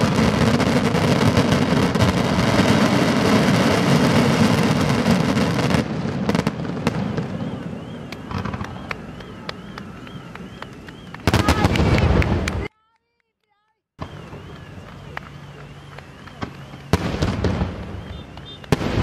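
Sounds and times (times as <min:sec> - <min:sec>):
fireworks crackling and bangs: 0:00.0 - 0:12.7, 0:14.0 - 0:19.0
firework pops: 0:04.5 - 0:12.7, 0:14.0 - 0:19.0.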